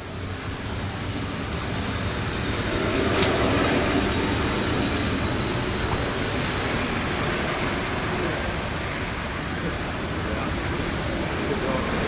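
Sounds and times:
jet engines rumbling: 0.0 - 12.0
sharp click: 3.2 - 3.4.

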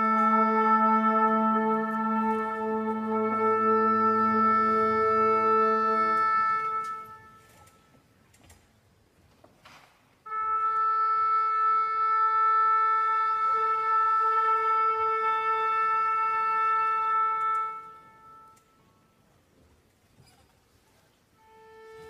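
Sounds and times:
wind instrument long note: 0.0 - 7.9, 10.3 - 19.0, 21.4 - 22.0.

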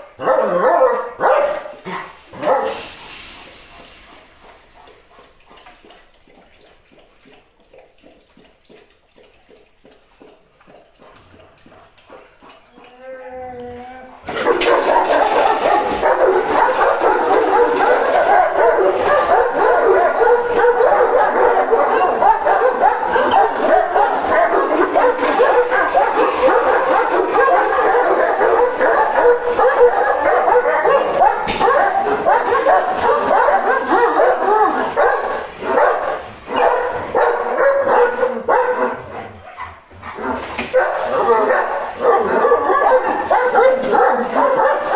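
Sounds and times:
dogs barking: 0.0 - 6.7, 10.2 - 13.0, 14.2 - 44.9.

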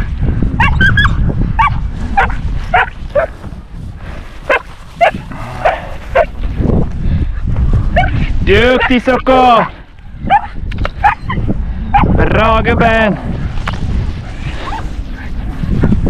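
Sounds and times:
dog whining and yipping: 0.6 - 2.3, 10.3 - 12.1
low rustle: 1.3 - 8.4, 12.8 - 16.0.

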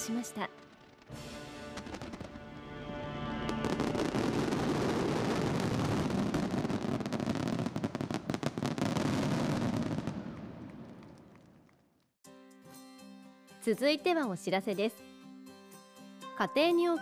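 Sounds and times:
fireworks bangs and crackles: 0.4 - 2.6, 3.4 - 12.1.

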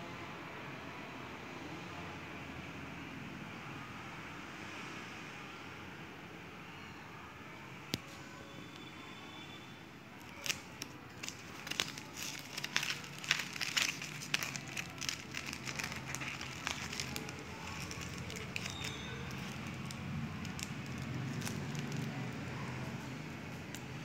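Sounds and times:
plastic sleeves crinkling: 10.2 - 22.7.

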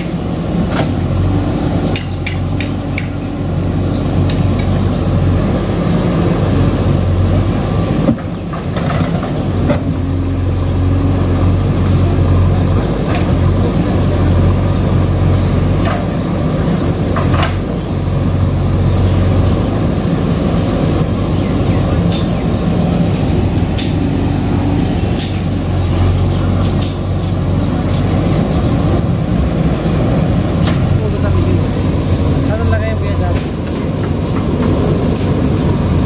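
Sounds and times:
diesel engine running under load: 0.0 - 36.0.

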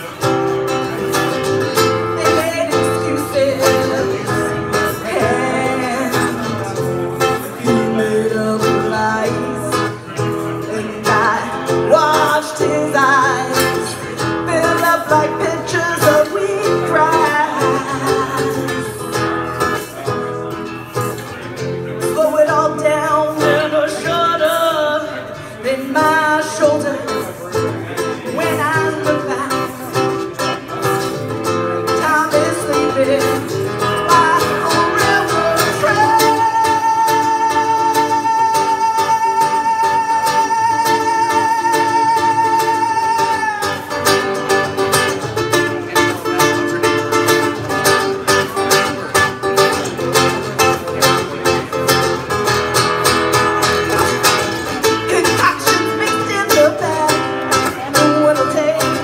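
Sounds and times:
acoustic guitar: 0.0 - 59.0
woman singing: 2.0 - 19.2, 22.0 - 27.3, 28.3 - 30.4, 31.8 - 44.3, 54.8 - 59.0.

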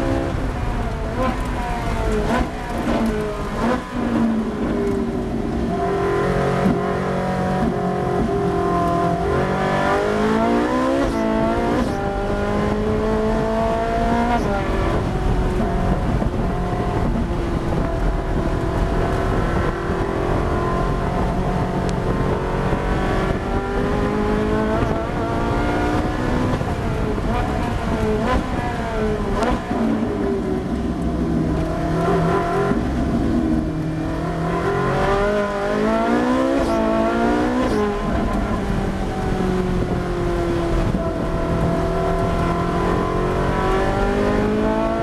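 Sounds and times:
race car engine revving: 0.0 - 45.0.

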